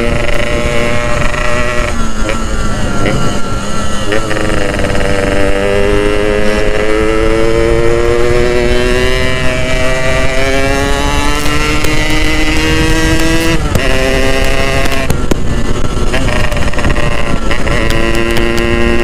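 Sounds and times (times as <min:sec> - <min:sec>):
two-stroke motorcycle engine revving: 0:00.0 - 0:19.0.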